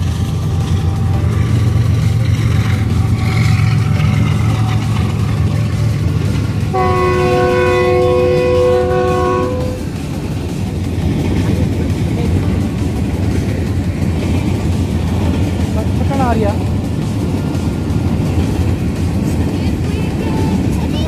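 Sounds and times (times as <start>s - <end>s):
locomotive horn blast: 0.0s - 10.0s
freight train rumbling past: 0.0s - 21.0s.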